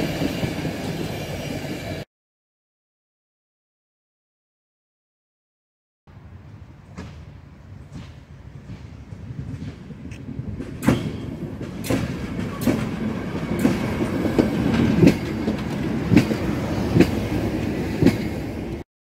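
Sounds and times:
train rumble: 0.0s - 2.0s, 6.1s - 18.8s
wheels clacking over rail joints: 6.8s - 18.8s.

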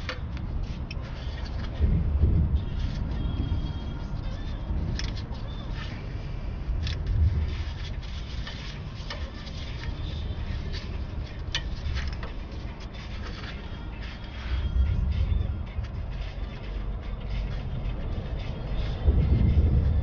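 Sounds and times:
low rumble: 0.0s - 8.4s, 14.4s - 20.0s
car parts clicking and scraping: 0.0s - 20.0s.

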